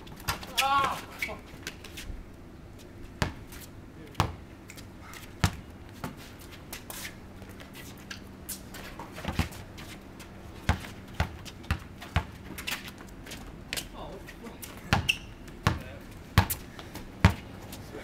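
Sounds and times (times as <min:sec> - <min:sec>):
basketball bouncing on concrete: 0:03.2 - 0:03.4, 0:04.1 - 0:04.4, 0:05.4 - 0:06.2, 0:09.0 - 0:09.6, 0:10.6 - 0:12.6, 0:14.7 - 0:17.5.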